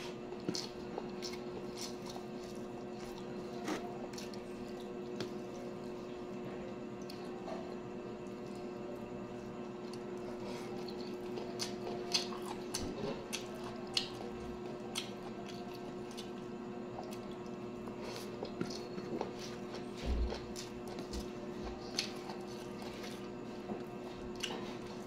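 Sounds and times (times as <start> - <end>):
steady background hum: 0.0 - 25.0
wet chewing and squishing: 0.4 - 6.0, 9.8 - 25.0.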